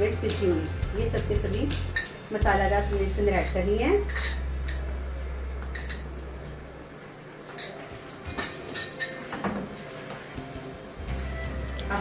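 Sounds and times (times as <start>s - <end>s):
spoon clinking on glass bowl: 2.9s - 4.9s, 5.6s - 6.1s, 7.5s - 9.4s.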